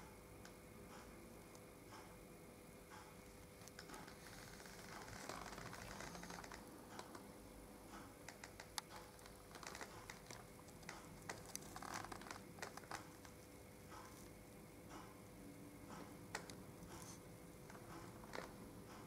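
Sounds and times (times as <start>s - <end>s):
steady low hum: 0.0s - 19.0s
small clicks and taps: 15.9s - 19.0s.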